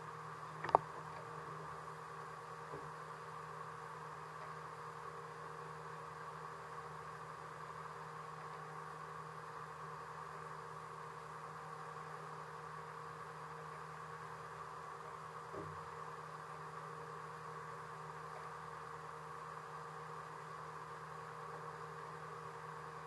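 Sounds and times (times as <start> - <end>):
boat engine humming: 0.6 - 1.0.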